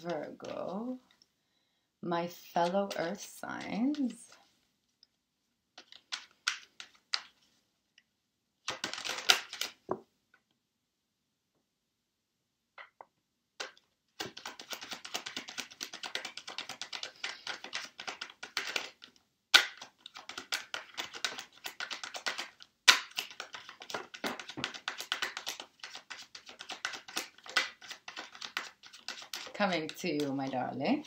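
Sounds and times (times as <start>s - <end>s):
cards shuffling: 2.6s - 4.3s, 5.8s - 7.5s, 8.6s - 10.0s, 13.6s - 31.0s.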